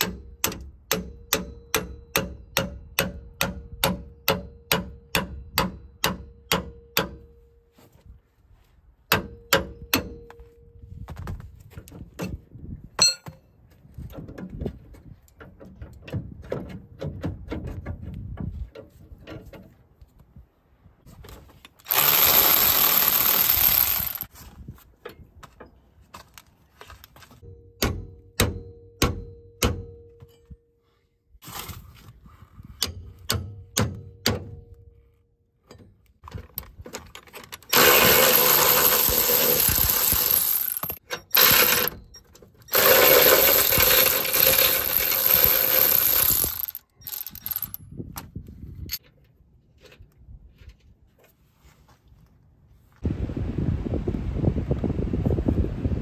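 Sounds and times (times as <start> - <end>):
ringing metal clinks: 13.0 - 13.4
power tool bursts: 21.9 - 24.3, 37.7 - 42.0, 42.7 - 47.7.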